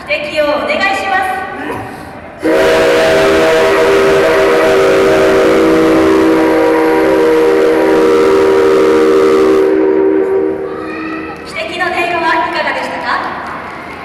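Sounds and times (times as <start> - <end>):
steam locomotive whistle: 2.4 - 11.3.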